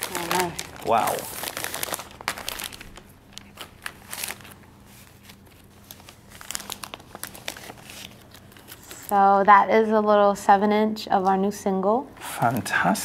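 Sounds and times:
wrapping paper crinkling: 0.0 - 9.4.

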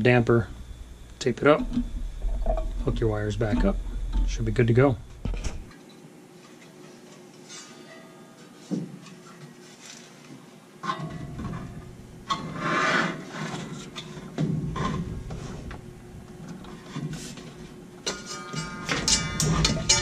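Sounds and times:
metal scraping against metal: 0.6 - 5.7, 18.1 - 20.0.

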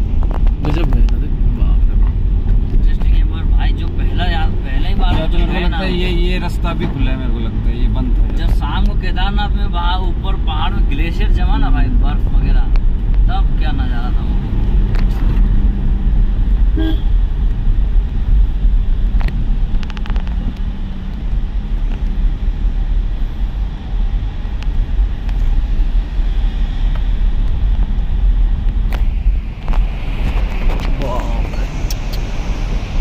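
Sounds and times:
car engine and road rumble: 0.0 - 33.0
car horn toot: 16.7 - 17.2.

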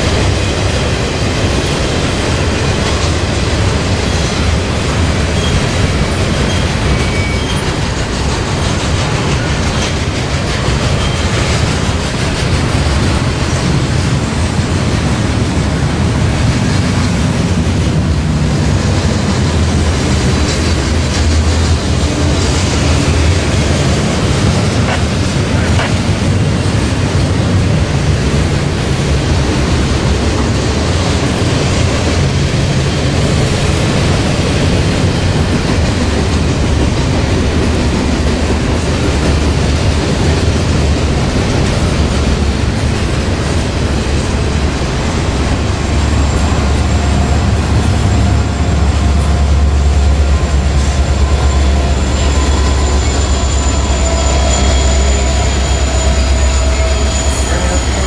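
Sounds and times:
train wheels rumbling on rails: 0.0 - 58.0
high-pitched squeal: 44.2 - 58.0.

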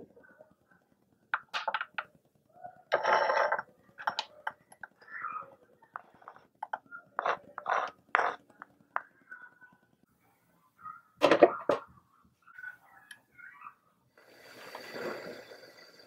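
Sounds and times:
knife scraping cutting board: 7.2 - 8.5.

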